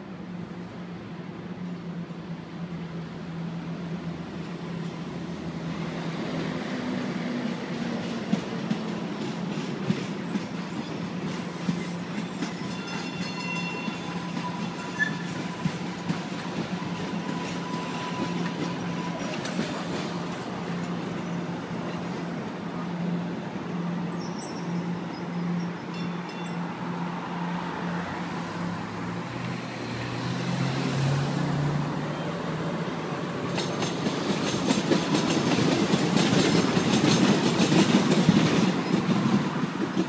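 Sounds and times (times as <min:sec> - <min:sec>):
train wheels clacking on rail joints: 0:07.4 - 0:21.4, 0:33.5 - 0:40.0
high wheel squeal: 0:11.5 - 0:20.4.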